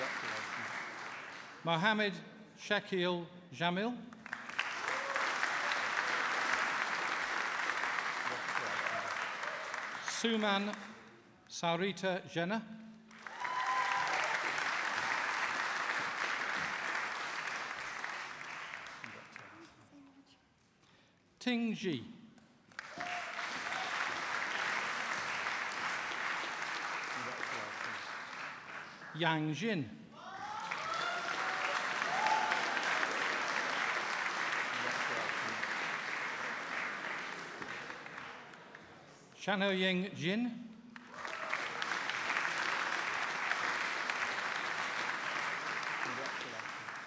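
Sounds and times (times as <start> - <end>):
audience applauding: 0.0 - 1.6, 4.2 - 11.0, 13.1 - 19.6, 22.7 - 29.3, 30.3 - 39.1, 41.0 - 47.0.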